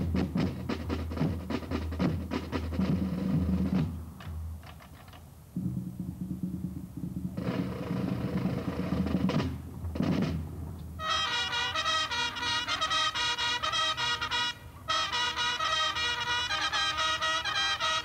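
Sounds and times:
drum corps drumming: 0.0s - 4.0s, 5.6s - 18.0s
brass notes: 11.0s - 18.0s.

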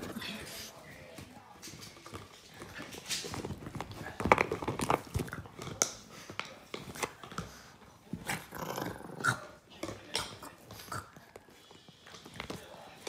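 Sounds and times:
dog biting plastic bottle: 3.2s - 6.0s.

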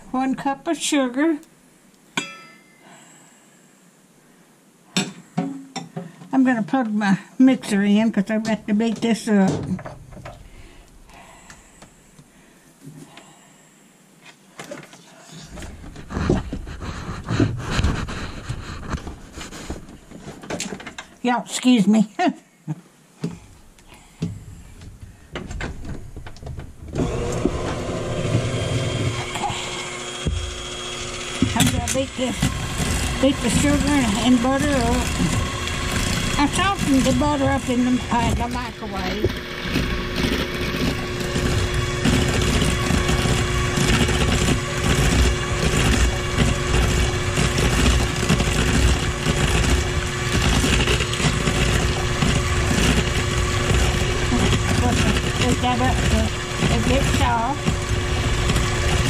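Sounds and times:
hand mixer motor whining: 27.0s - 59.0s.

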